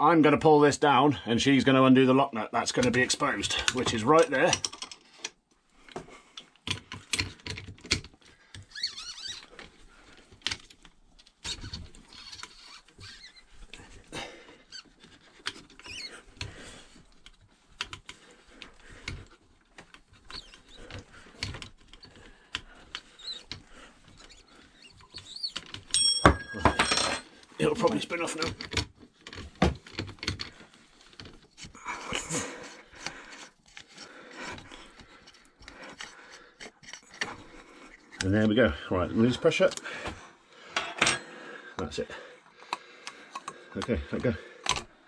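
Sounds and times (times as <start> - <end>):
metal clicks taps and scrapes: 2.8 - 8.8, 14.7 - 26.0, 27.8 - 38.6, 42.6 - 44.9
faint squeaks: 8.6 - 10.1, 11.4 - 14.0, 14.7 - 16.7, 20.1 - 25.7.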